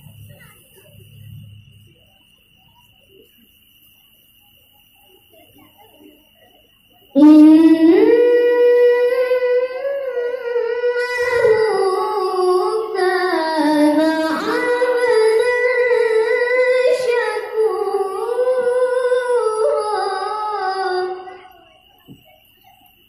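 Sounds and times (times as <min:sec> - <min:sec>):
child reciting melodically: 0:07.2 - 0:22.2.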